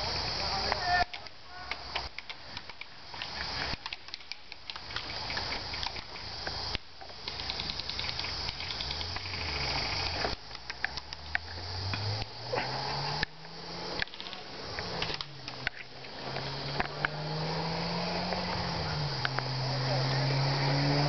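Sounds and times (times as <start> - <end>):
sharp clicks: 0.7 - 12.4, 13.0 - 17.2, 18.3 - 19.5.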